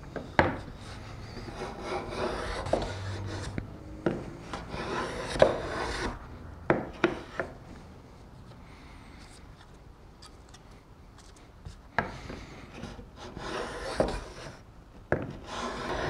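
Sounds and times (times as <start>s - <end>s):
block plane shaving wood: 0.6s - 3.6s, 4.4s - 6.2s, 12.7s - 14.6s, 15.4s - 16.0s.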